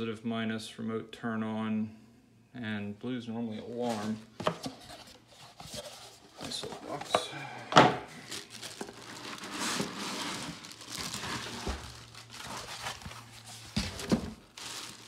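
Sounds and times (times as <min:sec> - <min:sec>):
plastic bag crinkling: 0:08.0 - 0:15.0.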